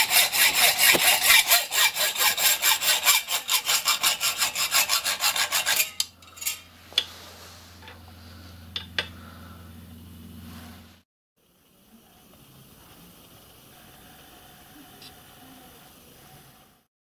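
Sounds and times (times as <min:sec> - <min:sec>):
bandsaw rasping through metal: 0:00.0 - 0:07.1
bandsaw humming: 0:00.0 - 0:11.0.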